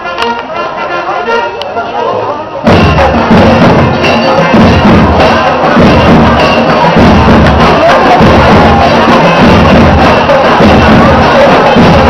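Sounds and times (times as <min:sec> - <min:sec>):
marching band playing: 0:00.0 - 0:12.0
rapid drum hits: 0:02.6 - 0:12.0.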